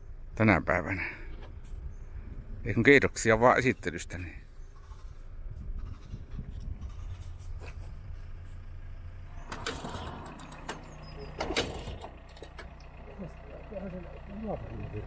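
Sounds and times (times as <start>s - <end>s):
vehicle engine idling: 0.0s - 15.0s.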